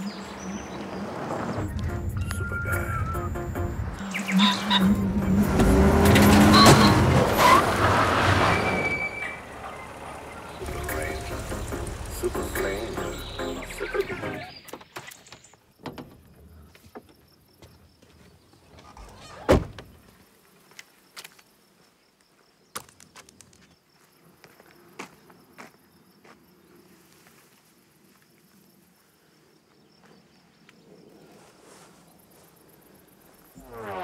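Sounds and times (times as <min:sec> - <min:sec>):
car door shutting: 0:05.3 - 0:07.6
insects buzzing: 0:09.3 - 0:34.0
footsteps on asphalt: 0:22.2 - 0:27.5.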